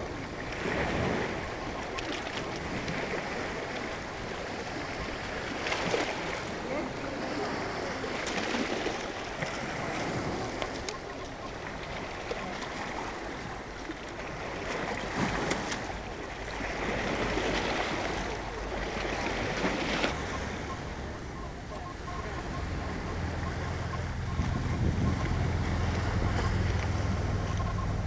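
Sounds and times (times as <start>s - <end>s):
waves lapping on pebbly shore: 0.0s - 21.2s.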